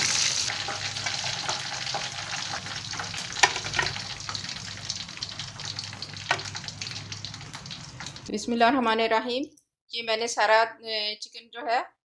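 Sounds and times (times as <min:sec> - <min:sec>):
hot oil sizzling and crackling: 0:00.0 - 0:08.3.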